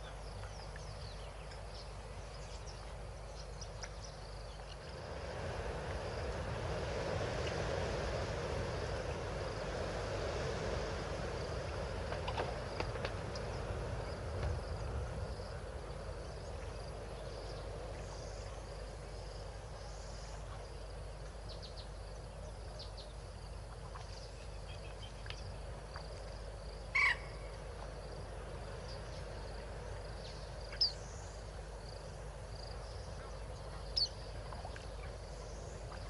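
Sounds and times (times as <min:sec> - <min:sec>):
loud animal call: 0:27.0 - 0:27.3.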